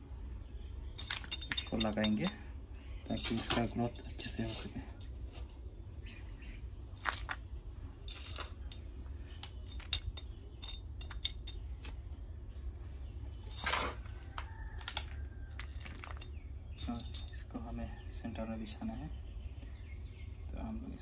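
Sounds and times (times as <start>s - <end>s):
metal tool scraping gritty soil: 3.1s - 5.6s, 7.0s - 12.0s, 13.2s - 17.4s.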